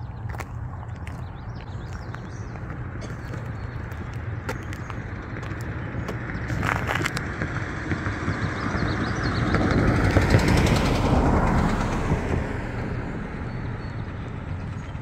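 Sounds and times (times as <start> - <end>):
steady low rumble: 0.0 - 15.0
vehicle passing by: 0.0 - 15.0.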